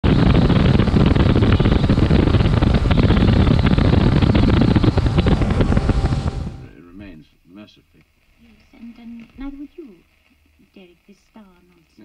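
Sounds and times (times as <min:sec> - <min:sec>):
wind buffeting microphone: 0:00.0 - 0:06.7
outboard motor rumble: 0:00.0 - 0:06.8.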